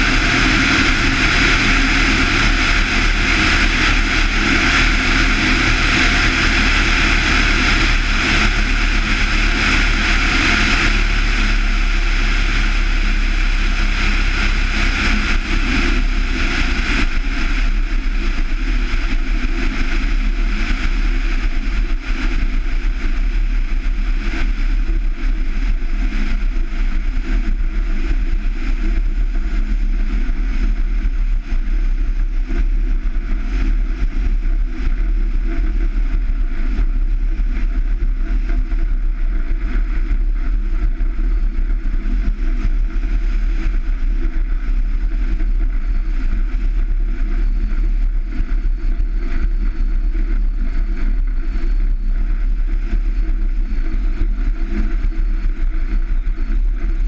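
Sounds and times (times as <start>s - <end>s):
rushing noise: 0.0s - 28.9s
plane engine and propeller: 0.0s - 57.0s.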